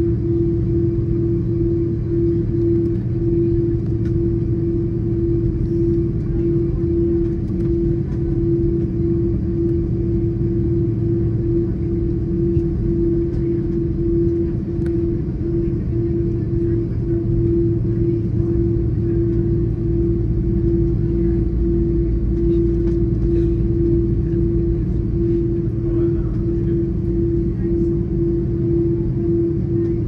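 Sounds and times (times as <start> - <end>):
jet engines rumbling at taxi: 0.0 - 30.0
pulsing hum: 0.0 - 30.0.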